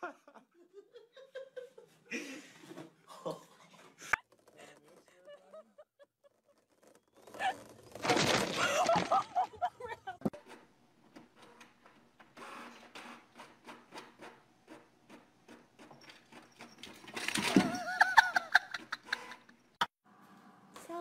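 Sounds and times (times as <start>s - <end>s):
inkjet printer printing: 10.3s - 17.0s, 18.8s - 19.5s
voice: 20.8s - 21.0s.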